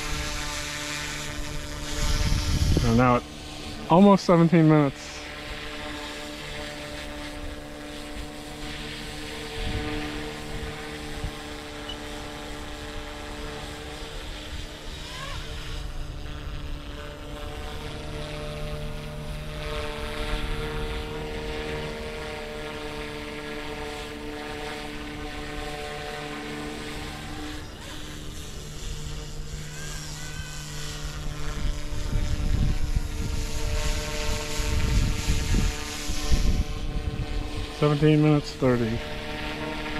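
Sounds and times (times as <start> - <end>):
wind rumble on microphone: 0.0 - 3.9, 7.0 - 11.7, 30.8 - 39.9
rc helicopter motor whine: 0.0 - 39.9.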